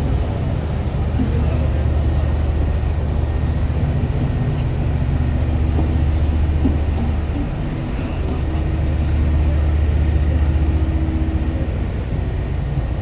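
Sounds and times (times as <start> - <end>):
diesel engines droning: 0.0 - 13.0.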